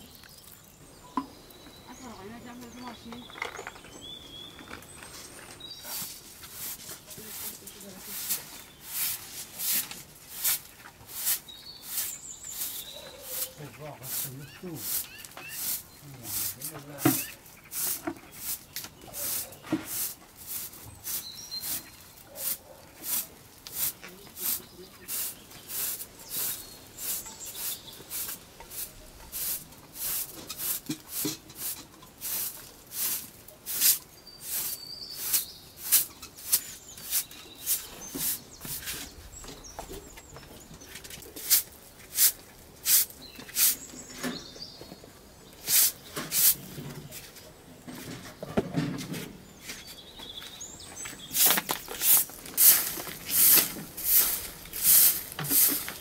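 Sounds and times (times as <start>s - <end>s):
broom sweeping concrete floor: 5.8s - 39.4s, 40.8s - 44.5s, 45.6s - 48.1s, 51.2s - 56.0s.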